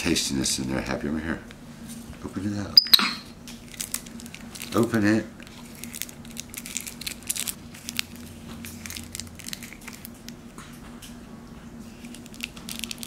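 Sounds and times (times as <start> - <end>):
plastic wrapper crinkling: 3.5 - 10.4, 11.9 - 13.0.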